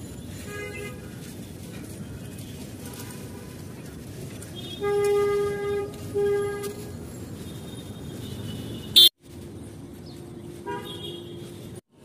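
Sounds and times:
street traffic noise: 0.0 - 12.0
vehicle horn blasts: 4.6 - 6.9, 8.2 - 9.2, 10.6 - 11.5.

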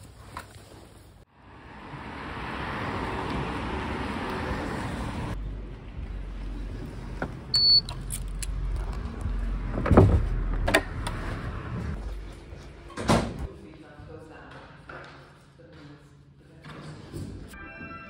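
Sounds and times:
car passing on tarmac: 1.3 - 12.2
electronic beep: 7.6 - 7.9.

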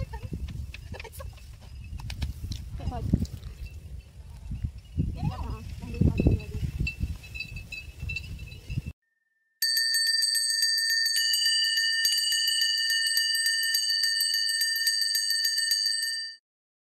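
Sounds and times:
electronic bell-like chime: 7.4 - 16.4.

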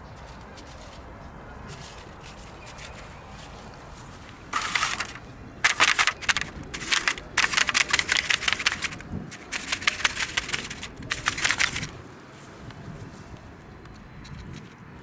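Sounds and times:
dry cat food clattering: 4.5 - 12.0.

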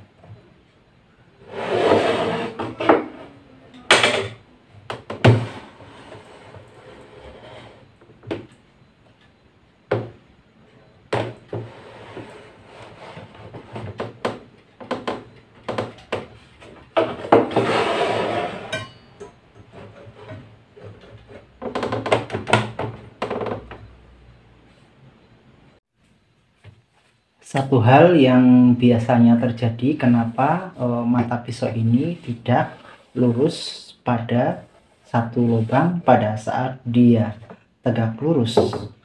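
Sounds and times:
wood and metal scraping: 1.4 - 3.4, 5.1 - 8.5, 11.1 - 23.7.

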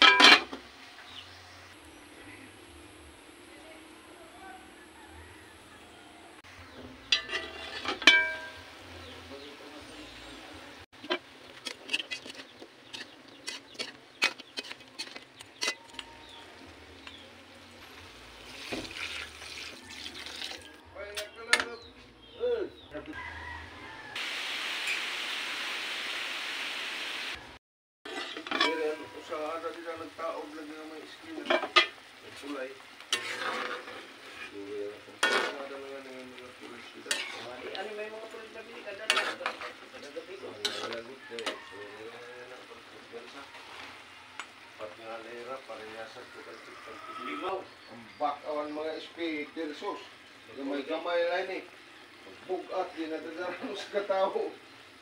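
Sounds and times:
metal ladle clinking against wok: 0.0 - 0.6, 7.0 - 8.8, 11.0 - 16.4, 28.1 - 29.3, 40.6 - 41.6
metal spatula scraping a pot: 6.7 - 8.8, 11.0 - 17.3, 28.1 - 29.5, 31.4 - 37.8, 38.9 - 42.0.

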